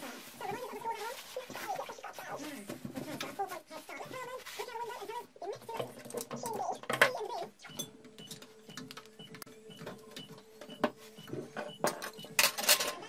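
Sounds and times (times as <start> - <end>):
paper tissue rustling: 0.0 - 5.3.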